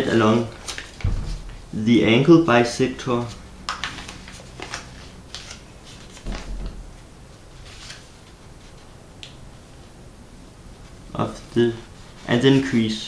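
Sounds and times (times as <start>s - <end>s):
paper crinkling and rustling: 0.0s - 1.6s, 3.2s - 6.8s, 7.5s - 9.3s, 10.9s - 13.0s
dull low thump: 1.0s - 1.6s.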